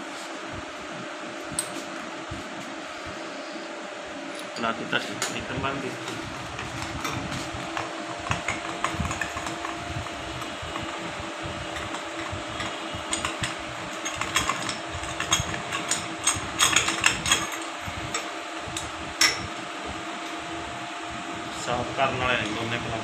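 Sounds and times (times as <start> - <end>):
steady hum: 0.0 - 23.0
metal spanner clicks and clinks: 11.8 - 18.3.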